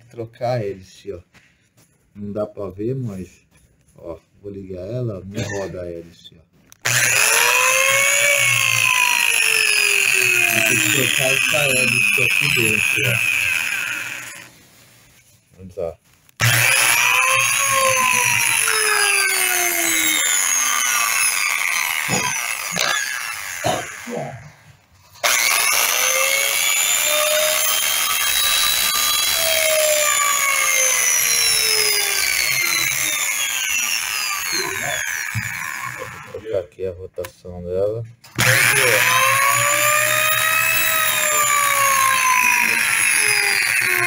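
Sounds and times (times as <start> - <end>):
impact drill motor running: 6.8 - 14.6, 16.4 - 24.1, 25.2 - 36.4, 38.3 - 44.0.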